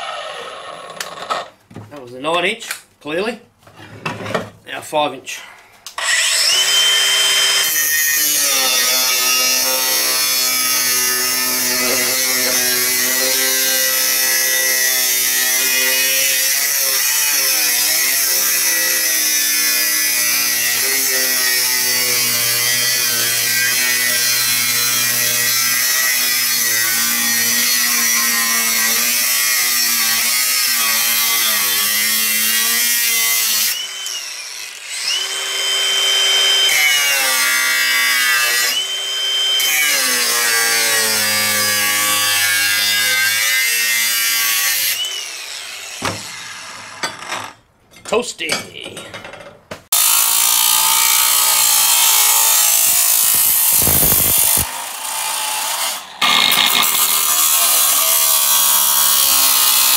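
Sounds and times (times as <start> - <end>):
angle grinder cutting steel: 0.0 - 1.6, 5.9 - 47.6, 49.9 - 59.9
grinder disc spinning free: 53.4 - 54.6.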